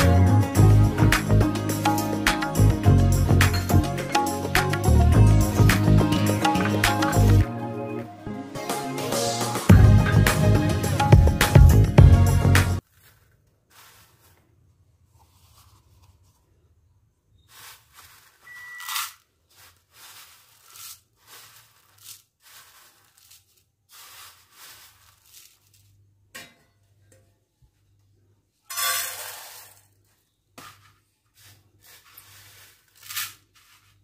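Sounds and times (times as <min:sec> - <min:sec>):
dry noodles rustling and crunching: 0:12.8 - 0:16.8, 0:17.4 - 0:26.1, 0:31.3 - 0:34.0.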